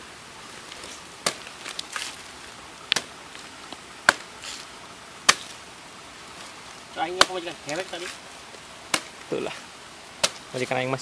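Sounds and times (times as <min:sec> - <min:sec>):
machete chopping coconut husk: 0:01.2 - 0:01.7, 0:03.0 - 0:03.2, 0:04.0 - 0:04.4, 0:05.2 - 0:05.6, 0:07.0 - 0:08.2, 0:08.8 - 0:09.3, 0:10.2 - 0:10.7
light taps on coconut: 0:07.1 - 0:08.1.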